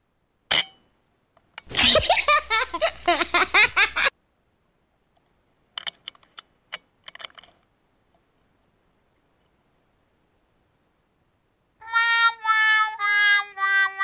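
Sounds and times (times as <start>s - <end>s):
laughter: 1.7s - 4.1s.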